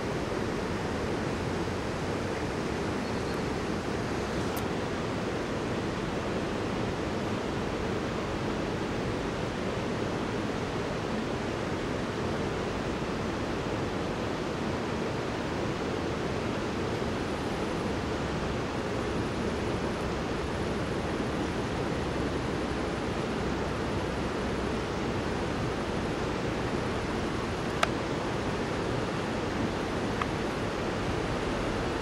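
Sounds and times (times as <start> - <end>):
river water rushing: 0.0 - 32.0.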